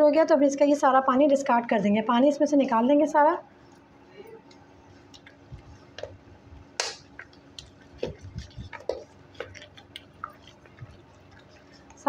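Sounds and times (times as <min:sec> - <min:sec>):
faint steady hum: 0:00.0 - 0:12.0
hand squelching ghee in pot: 0:05.0 - 0:12.0.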